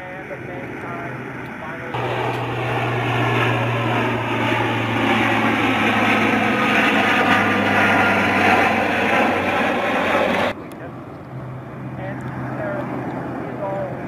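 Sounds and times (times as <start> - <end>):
aircraft engines droning overhead: 0.0 - 14.0
low hum: 0.0 - 14.0.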